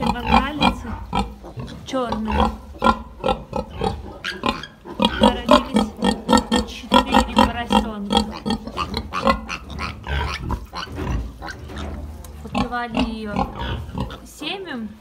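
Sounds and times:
piglets grunting: 0.0 - 14.3
piglet squeals: 3.8 - 5.4.

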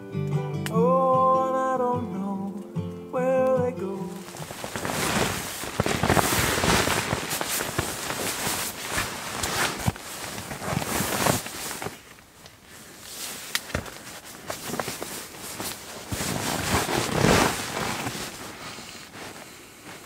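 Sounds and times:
sleeping bag rustling: 4.1 - 20.0.

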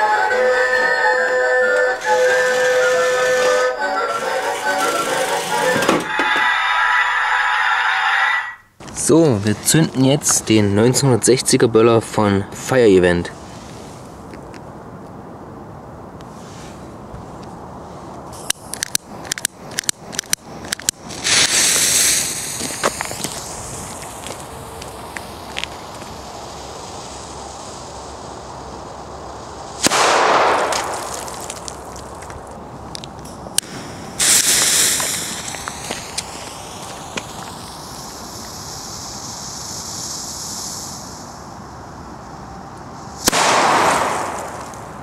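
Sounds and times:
fuse hissing: 0.0 - 7.9, 18.3 - 45.0
crackle: 1.7 - 10.5, 16.2 - 45.0.

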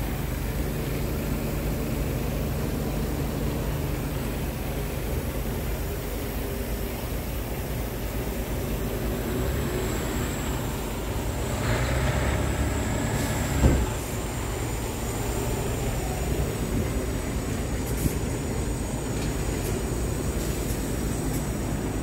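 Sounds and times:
truck diesel engine idling: 0.0 - 22.0
short thump: 13.6 - 14.0.

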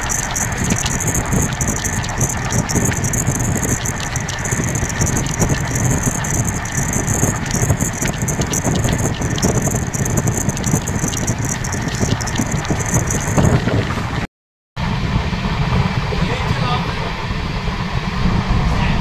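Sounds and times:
train rumbling and rattling: 0.0 - 14.2.

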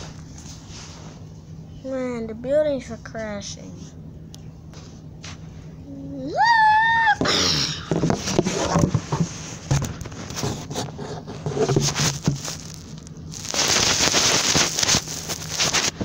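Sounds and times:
rustling on microphone: 8.1 - 16.0.

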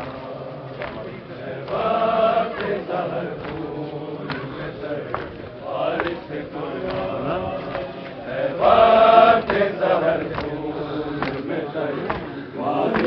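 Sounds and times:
men chanting together: 0.0 - 13.0
crowd crying out: 12.6 - 13.0.

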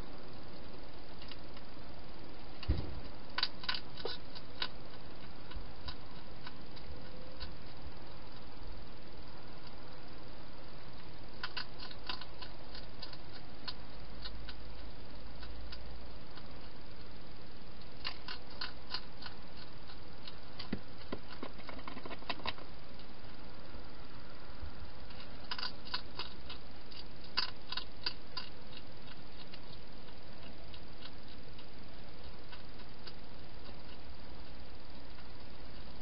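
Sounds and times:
steady hiss: 0.0 - 36.0
hedgehog crunching food: 0.6 - 1.8, 2.4 - 23.4, 25.0 - 36.0.

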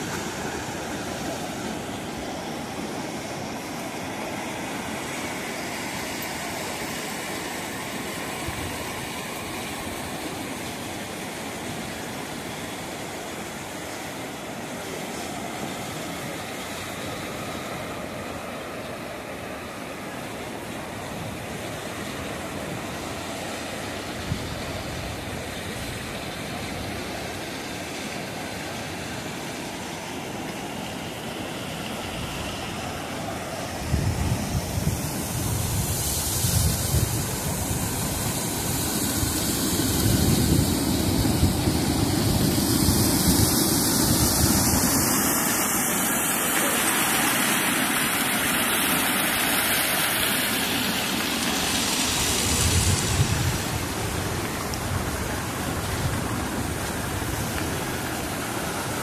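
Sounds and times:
sea surf washing onto beach: 0.0 - 59.0
wind buffeting microphone: 33.8 - 45.3, 52.2 - 58.1.

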